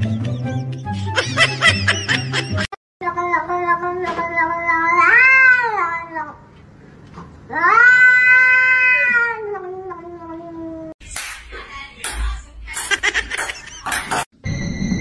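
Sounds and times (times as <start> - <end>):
cat yowling: 4.6 - 6.2, 7.5 - 10.9.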